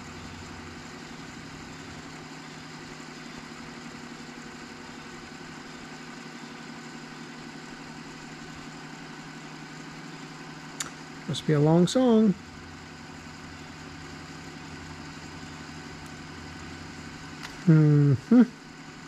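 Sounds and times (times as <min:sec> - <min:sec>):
cassette deck fast-forward hum: 0:12.4 - 0:17.8.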